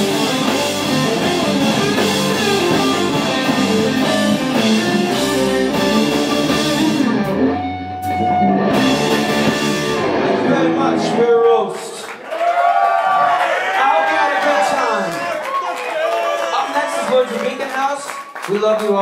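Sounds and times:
live rock band playing: 0:00.0 - 0:12.0.

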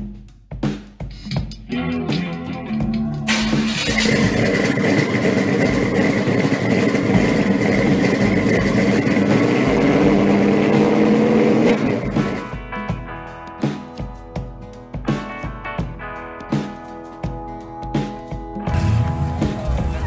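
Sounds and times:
high whine: 0:01.8 - 0:12.6
car engine revving high: 0:03.3 - 0:12.5.

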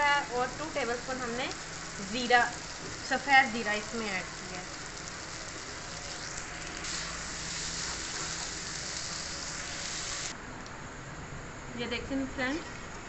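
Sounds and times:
food sizzling in oil: 0:00.0 - 0:10.3.

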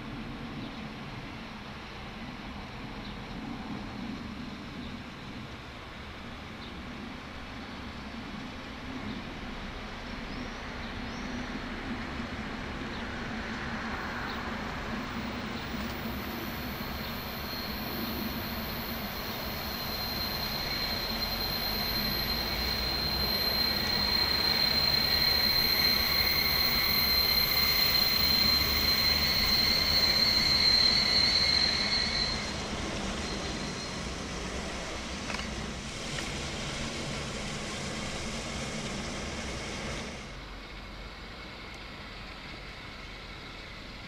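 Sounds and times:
train rumbling: 0:00.0 - 0:44.0
high-pitched train squeal: 0:12.4 - 0:44.0.

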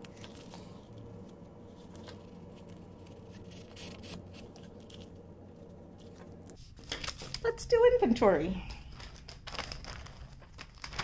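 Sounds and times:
low hum: 0:00.0 - 0:07.4.

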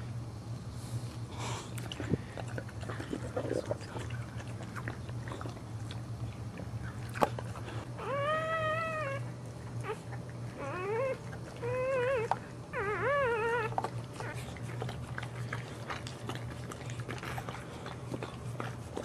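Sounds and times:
steady low hum: 0:00.0 - 0:19.0
puppy squealing: 0:08.0 - 0:14.4.

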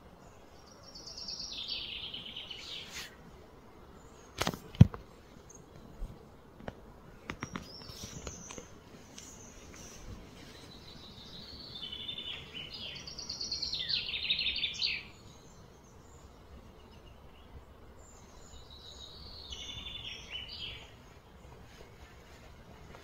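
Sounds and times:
faint low background noise: 0:00.0 - 0:23.0
bird singing trilled phrases: 0:00.6 - 0:02.9, 0:10.4 - 0:21.0.

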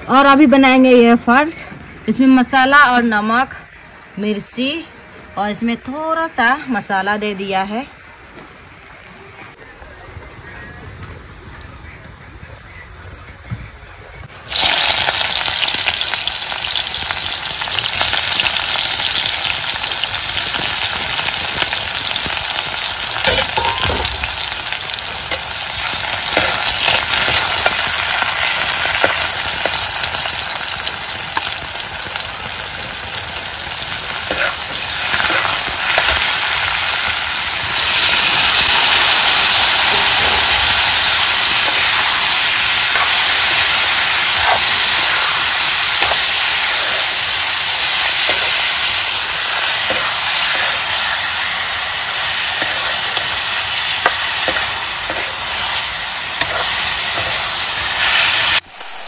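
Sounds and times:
meat sizzling in hot oil: 0:14.4 - 0:59.0
onions sizzling in hot oil: 0:14.4 - 0:59.0
spatula scraping a pan: 0:56.4 - 0:58.2.

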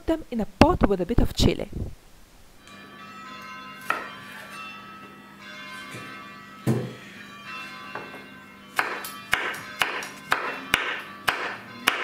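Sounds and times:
background music with bell tones: 0:02.6 - 0:12.0
knife chopping on cutting board: 0:03.8 - 0:04.5, 0:08.8 - 0:12.0.

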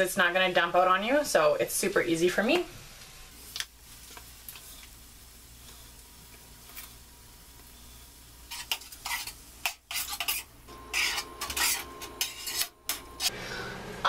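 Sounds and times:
chicken sizzling in a frying pan: 0:00.9 - 0:13.3
spoon scraping and clacking on pan: 0:08.5 - 0:13.3.

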